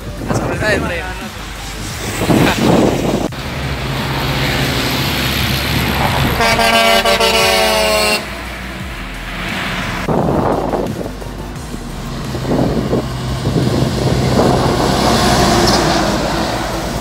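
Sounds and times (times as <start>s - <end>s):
rush of noise on microphone: 0.0s - 7.5s, 8.3s - 17.0s
truck diesel engine: 0.0s - 17.0s
truck rolling past: 1.3s - 17.0s
loud air horn blast: 6.0s - 8.5s.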